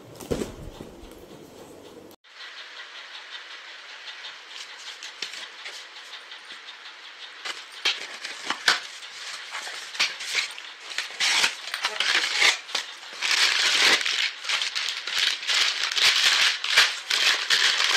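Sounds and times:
packing tape tearing: 9.5 - 17.9.

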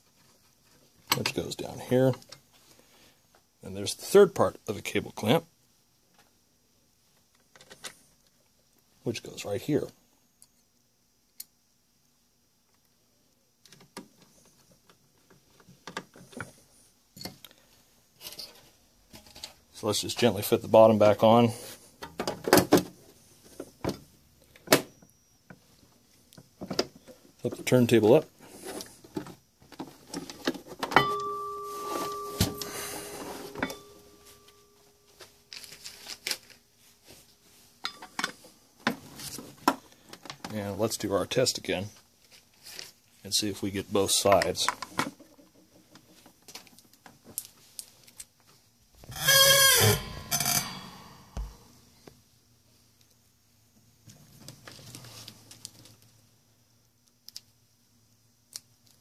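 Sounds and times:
metal platter ringing when knocked: 31.0 - 32.7, 33.3 - 34.6.

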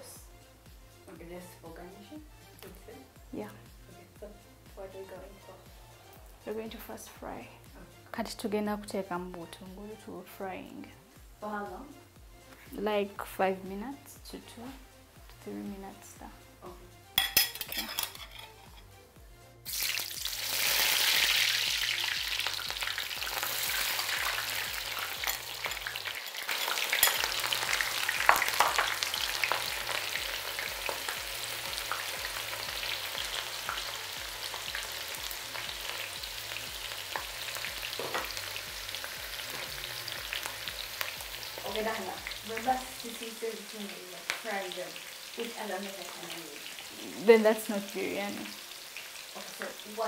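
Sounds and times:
onions sizzling in hot oil: 19.6 - 50.0.

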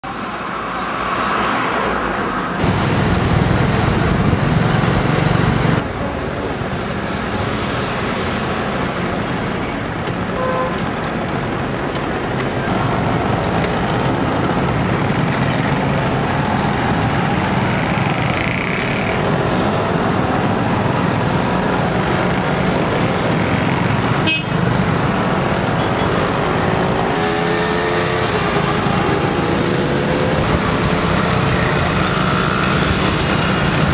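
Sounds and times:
car and motorbike engines: 0.0 - 33.9
car horn toots: 24.2 - 24.6.

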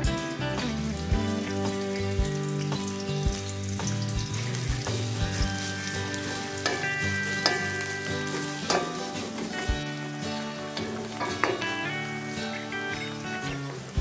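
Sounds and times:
onions sizzling in hot oil: 0.0 - 14.0
wooden spoon scraping a pan: 4.0 - 9.8.

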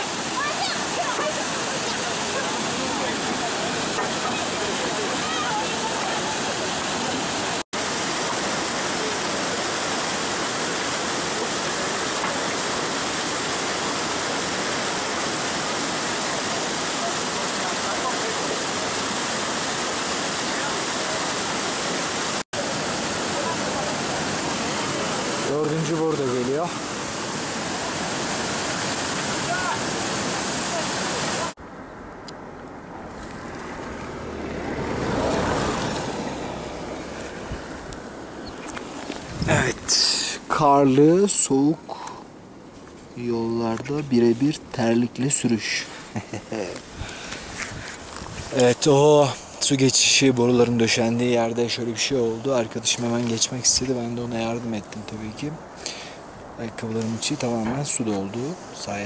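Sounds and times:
water rushing over rocks: 0.0 - 31.6, 33.0 - 59.0
wind buffeting microphone: 33.0 - 40.0, 46.3 - 48.6.

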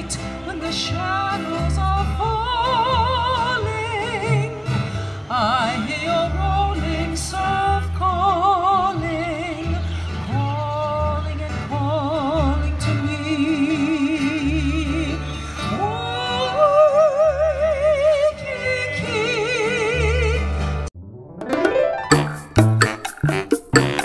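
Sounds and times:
ukulele: 16.0 - 24.0
plucked upright bass: 20.4 - 24.0
sharp percussive knocks: 21.5 - 24.0.

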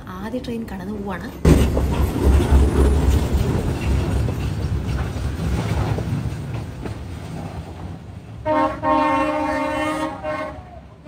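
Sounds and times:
freight train wagons rumbling: 0.0 - 11.0
train horn: 8.4 - 11.0.

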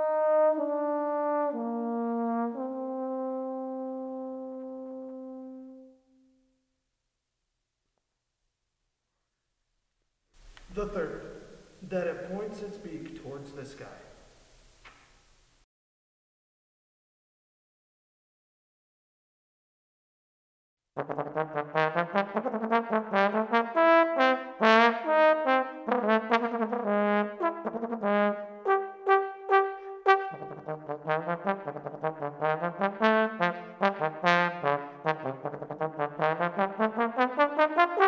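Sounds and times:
solo trombone playing: 0.0 - 6.4, 21.0 - 38.0.

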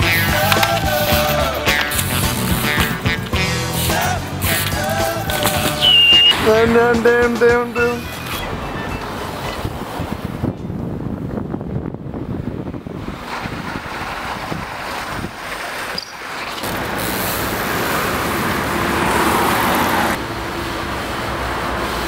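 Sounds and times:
street traffic rumble: 0.0 - 22.0
wind buffeting microphone: 8.2 - 15.8.

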